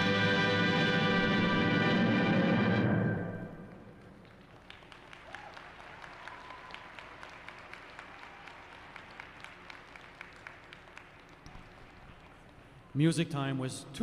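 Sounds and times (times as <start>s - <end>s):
orchestral music: 0.0s - 4.2s
small audience clapping: 3.6s - 12.9s.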